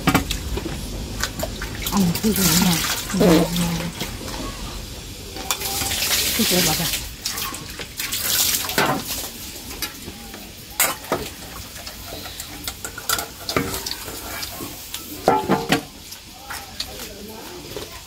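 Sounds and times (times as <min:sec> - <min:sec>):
chewing and slurping: 0:00.2 - 0:04.7.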